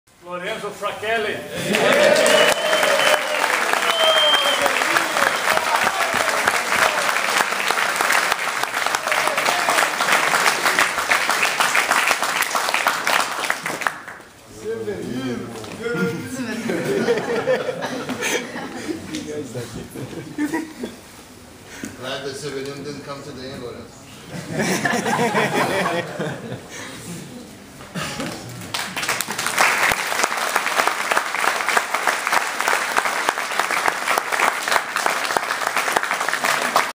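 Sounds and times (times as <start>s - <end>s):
people applauding: 1.6s - 14.3s, 28.2s - 36.9s
people clapping: 1.6s - 14.4s, 27.9s - 36.9s.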